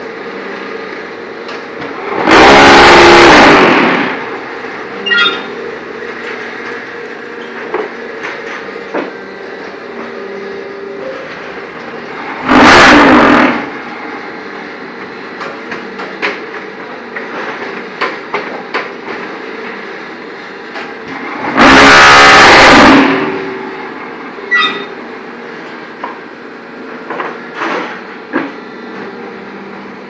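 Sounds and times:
machine motor hum: 0.0s - 30.0s
loud harsh burst: 2.1s - 4.3s, 12.3s - 13.8s, 21.4s - 23.7s.

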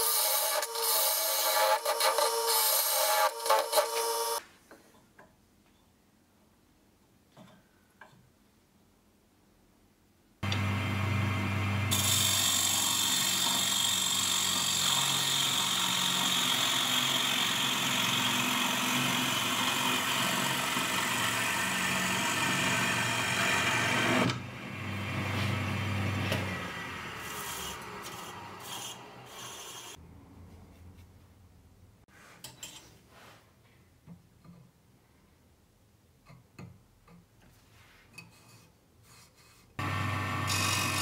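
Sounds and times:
lathe low hum: 10.4s - 13.4s, 22.3s - 29.9s, 39.8s - 41.0s.

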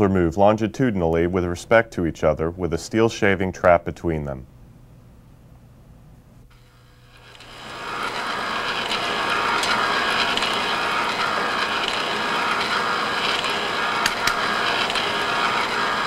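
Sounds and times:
test rig mechanical running noise: 6.5s - 16.0s.

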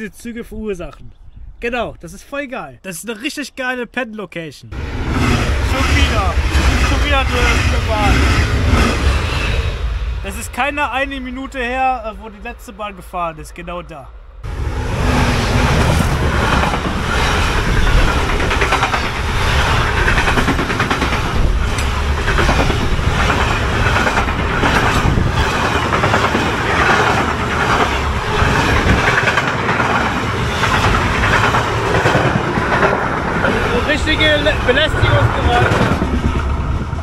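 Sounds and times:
train wheels clattering: 4.8s - 11.0s, 15.1s - 37.0s
freight train passing: 4.8s - 37.0s.

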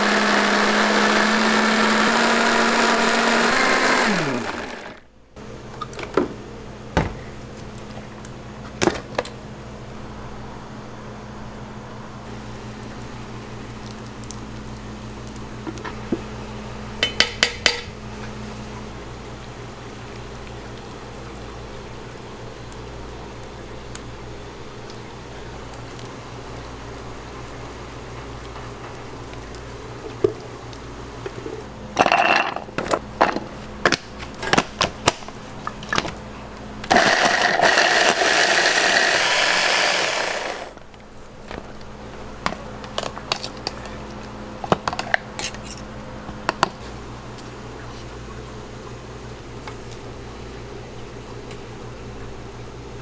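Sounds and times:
electric food chopper running: 0.0s - 5.1s, 36.9s - 40.8s
kitchen hum: 0.0s - 53.0s.

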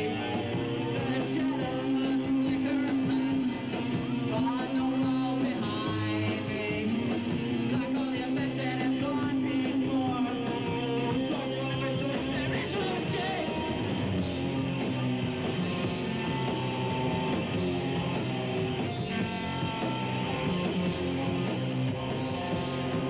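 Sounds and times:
person singing: 0.0s - 7.1s, 7.7s - 13.7s
electric guitar: 0.0s - 23.0s
punk rock band playing live: 0.0s - 23.0s.

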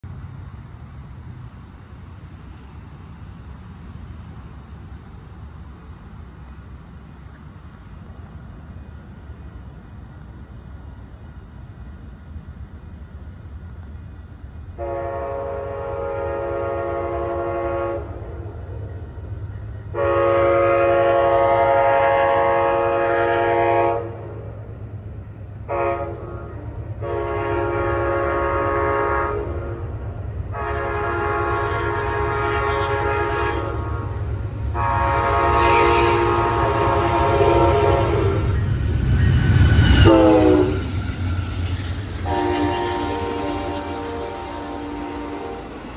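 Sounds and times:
train horn blasts: 14.8s - 18.4s, 19.8s - 24.5s, 25.6s - 38.7s, 39.7s - 41.0s, 42.2s - 45.9s.

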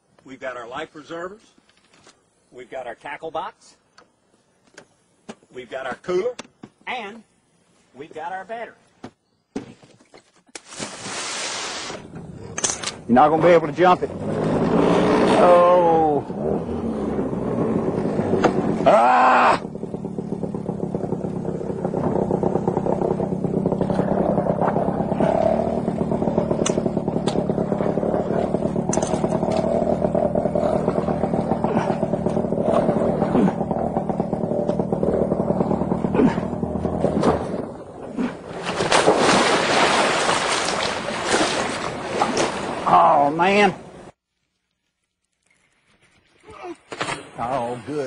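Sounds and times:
large splash: 10.6s - 12.1s, 38.2s - 43.0s
propeller churning water: 11.0s - 44.2s
outboard motor running: 11.9s - 44.0s.

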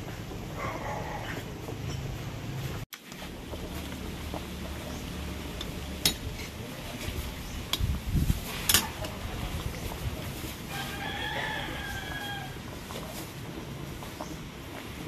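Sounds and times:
rooster crowing: 10.7s - 12.7s.

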